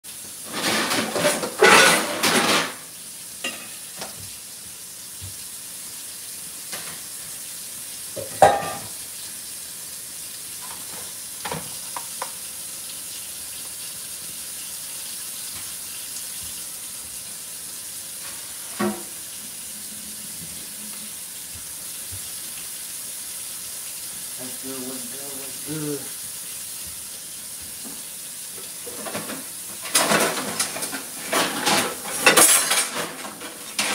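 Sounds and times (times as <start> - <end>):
kitchen handling clicks and knocks: 0.5 - 2.8, 8.2 - 8.9, 28.8 - 33.9
steady high hiss: 11.4 - 29.8.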